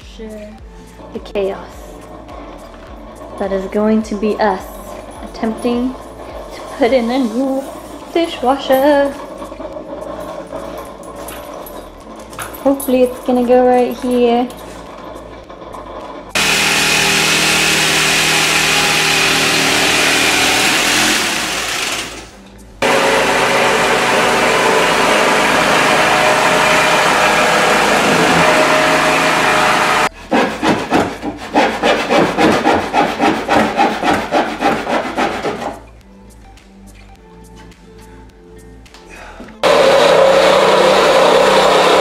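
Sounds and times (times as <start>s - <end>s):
motorised saw cutting wood: 1.0s - 35.9s, 39.6s - 42.0s
hand saw strokes: 13.8s - 35.9s.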